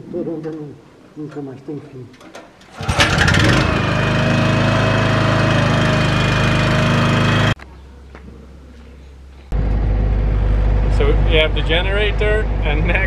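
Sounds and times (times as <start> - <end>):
generator engine cranking and running: 2.2 - 7.6
low hum: 7.6 - 13.0.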